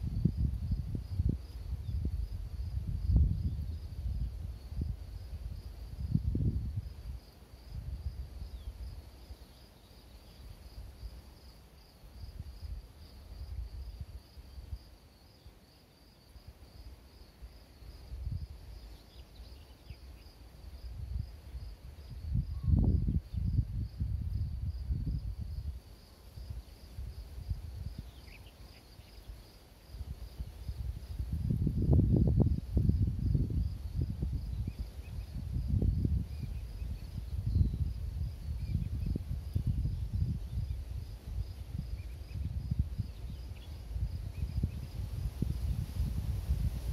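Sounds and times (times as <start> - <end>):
wind buffeting microphone: 0.0 - 9.0, 20.7 - 25.8, 26.4 - 28.5, 29.1 - 46.9.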